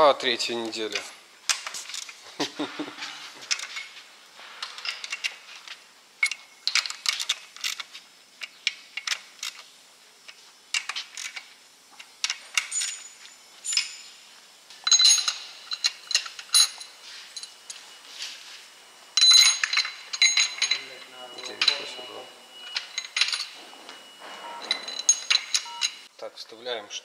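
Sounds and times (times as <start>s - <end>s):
hand tools clinking on engine parts: 14.8s - 17.8s, 19.2s - 23.7s, 24.3s - 26.1s
ringing metallic clinks: 14.8s - 17.8s, 19.2s - 26.1s.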